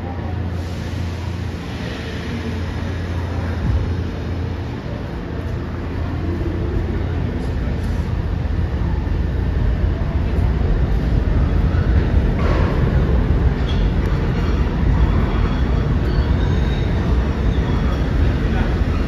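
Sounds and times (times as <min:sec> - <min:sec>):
subway train rumbling in tunnel: 0:00.0 - 0:19.0.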